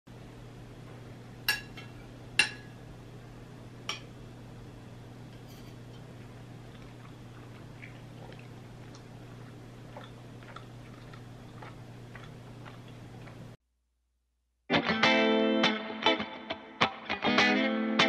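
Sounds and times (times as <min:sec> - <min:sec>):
steady low hum: 0:00.1 - 0:13.6.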